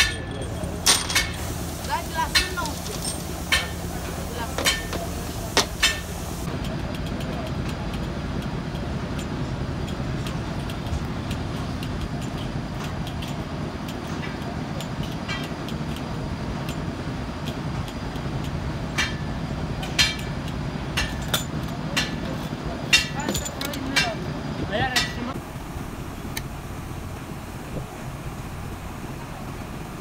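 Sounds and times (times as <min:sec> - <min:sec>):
light metallic clicks: 0:04.6 - 0:24.2
low background rumble: 0:18.3 - 0:30.0.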